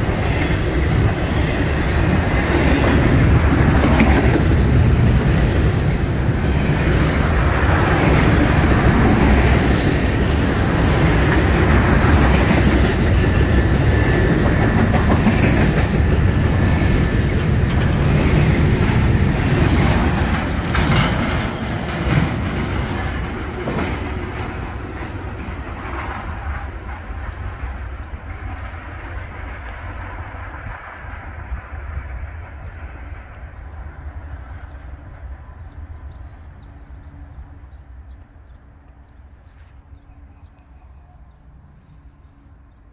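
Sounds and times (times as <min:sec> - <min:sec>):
wheels clicking over rail joints: 0:00.0 - 0:30.0
train wheels rumbling on rails: 0:00.0 - 0:42.9.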